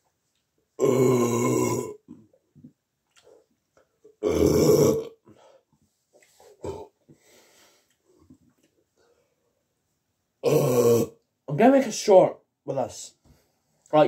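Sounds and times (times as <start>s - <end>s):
man burping loudly: 0.8s - 2.2s, 4.2s - 5.3s, 6.6s - 7.0s, 10.4s - 11.2s.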